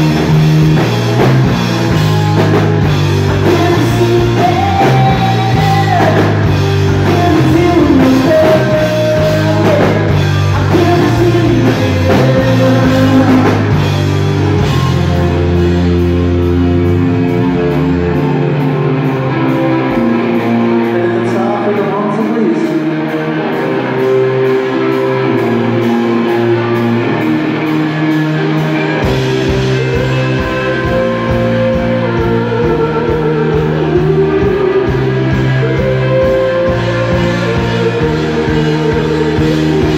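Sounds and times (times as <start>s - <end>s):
bass guitar: 0.0s - 39.9s
drum kit: 0.0s - 39.9s
electric guitar: 0.0s - 39.9s
man singing lead vocal: 3.3s - 14.8s, 20.6s - 23.3s, 29.5s - 39.9s.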